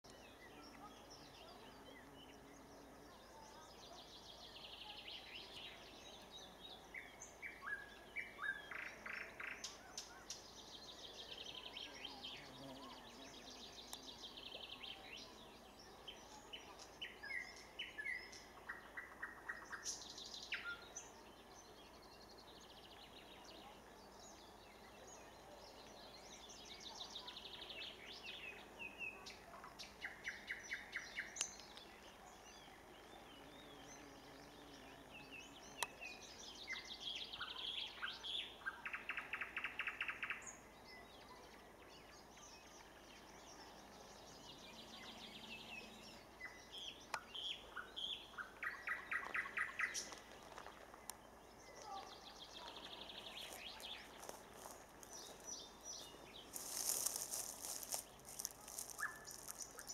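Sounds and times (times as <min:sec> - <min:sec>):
nightingale singing: 0:51.0 - 0:59.9.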